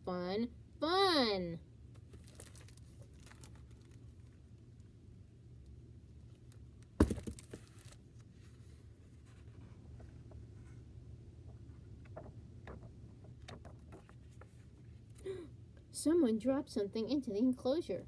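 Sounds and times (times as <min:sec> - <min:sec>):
low room hum: 0:00.0 - 0:18.0
book set down on desk: 0:07.0 - 0:08.0
page turning and paper rustling: 0:12.0 - 0:14.8.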